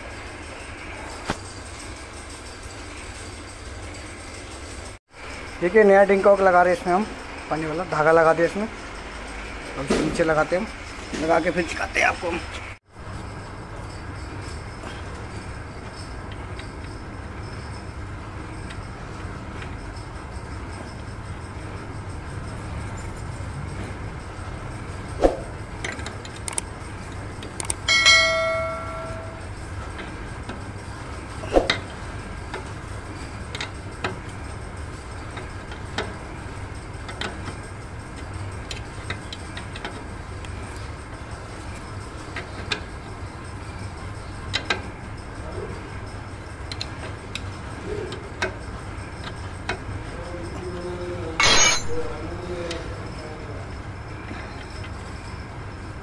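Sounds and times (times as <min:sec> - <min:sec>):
steady low hum: 0:12.4 - 0:56.0
metallic ring: 0:27.6 - 0:29.6, 0:51.2 - 0:53.2
metal tools clinking on fittings: 0:46.6 - 0:53.3.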